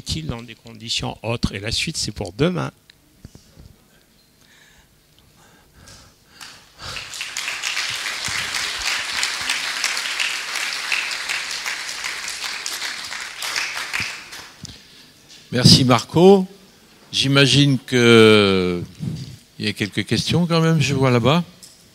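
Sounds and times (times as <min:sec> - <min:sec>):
audience applause: 0:06.4 - 0:14.6.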